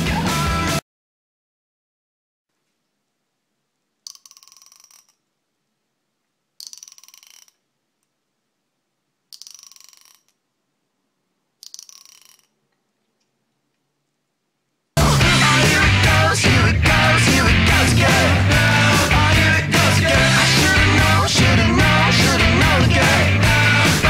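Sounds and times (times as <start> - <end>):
finger run along comb teeth: 4.1 - 5.2, 6.6 - 7.6, 9.3 - 10.4, 11.6 - 12.6.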